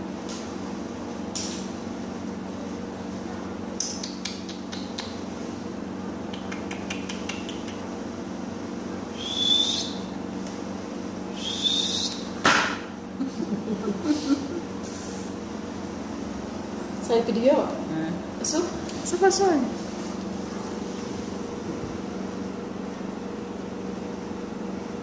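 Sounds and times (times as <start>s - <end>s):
steady low hum: 0.0s - 25.0s
kitten paws tapping on tiles: 6.3s - 7.9s.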